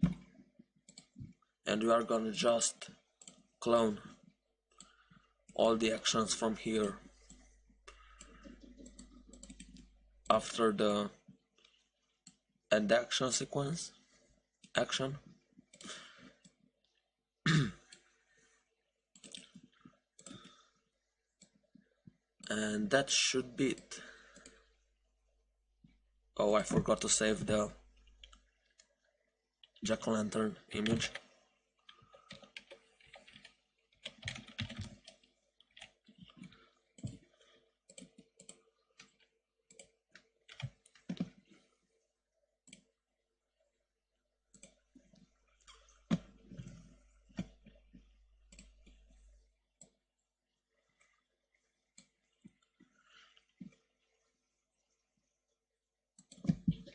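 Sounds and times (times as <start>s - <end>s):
typing on keyboard: 8.2s - 10.0s, 19.2s - 19.6s, 31.9s - 41.5s
person coughing: 17.5s - 17.9s.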